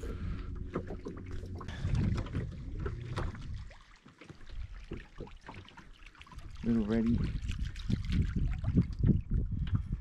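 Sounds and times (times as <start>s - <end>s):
boat motor humming: 0.0s - 3.7s.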